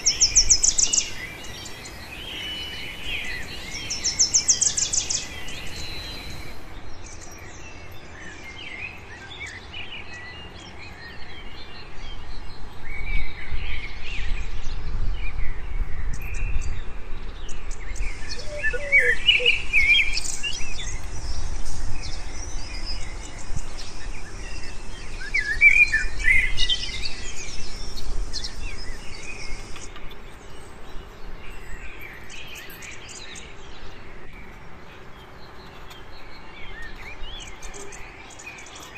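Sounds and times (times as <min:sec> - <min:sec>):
steady high hiss: 0:00.0 - 0:06.8
birds chirping: 0:00.0 - 0:08.0, 0:17.5 - 0:38.9.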